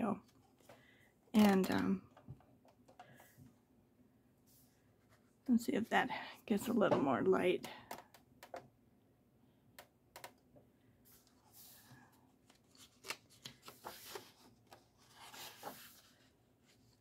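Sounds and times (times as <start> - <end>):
paper pages rustling: 11.1 - 17.0
page turning: 12.4 - 17.0.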